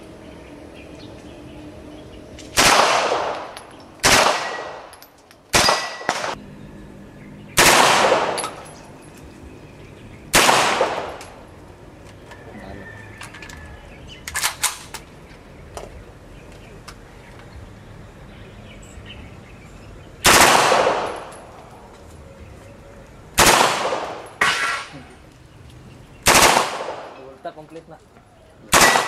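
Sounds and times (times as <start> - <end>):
gunshots echoing: 2.5 - 6.4, 7.6 - 8.8, 10.3 - 11.4, 20.2 - 21.5, 23.4 - 25.0, 26.2 - 27.2, 28.7 - 29.0.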